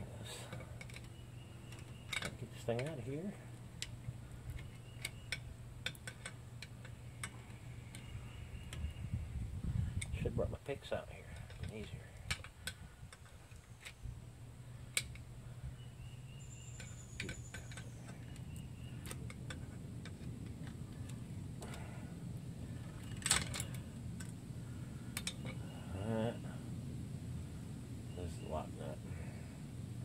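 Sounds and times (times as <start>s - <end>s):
steady low hum: 0.0s - 30.0s
screwdriver clicking and scraping metal: 3.8s - 8.1s, 16.8s - 18.4s.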